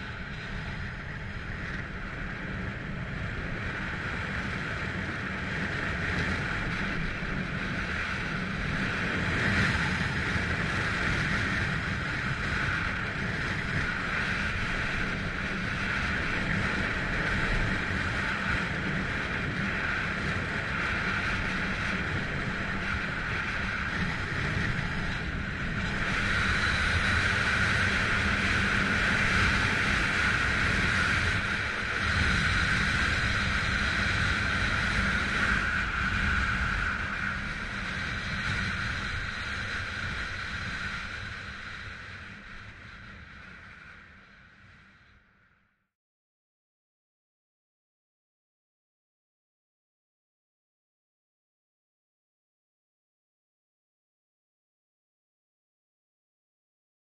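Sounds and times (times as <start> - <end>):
wind rumbling on microphone: 0.0 - 45.5.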